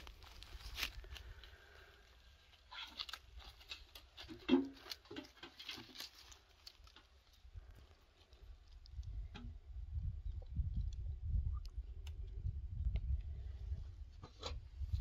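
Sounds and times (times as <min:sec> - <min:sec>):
twigs rustling and crackling: 0:00.0 - 0:09.4.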